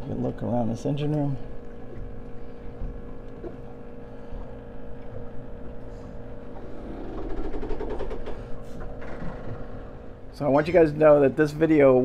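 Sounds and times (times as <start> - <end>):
engine room machinery hum: 0.0 - 12.0
low rumble: 5.2 - 10.4.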